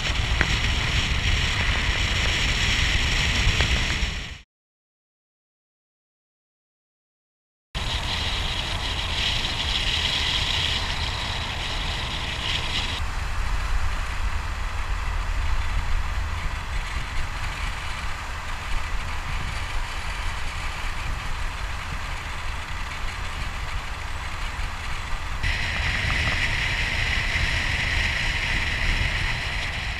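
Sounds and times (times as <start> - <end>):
motorboat engine and wind rumble: 0.0 - 4.4, 7.8 - 29.9
bright hiss: 7.8 - 29.9.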